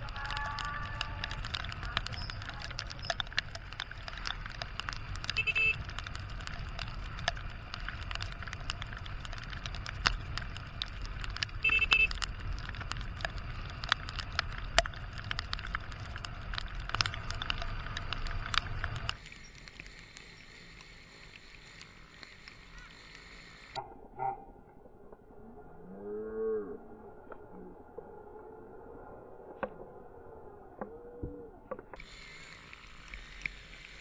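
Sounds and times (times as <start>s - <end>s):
motorcycle engine and wind rumble: 0.0s - 19.2s
raindrops ticking on camera: 0.0s - 23.8s, 31.7s - 34.0s.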